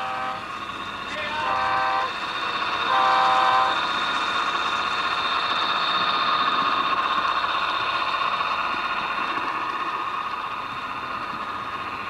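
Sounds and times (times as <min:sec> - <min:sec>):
diesel locomotive horn: 0:00.0 - 0:02.2, 0:02.8 - 0:03.9
train running: 0:00.0 - 0:12.0.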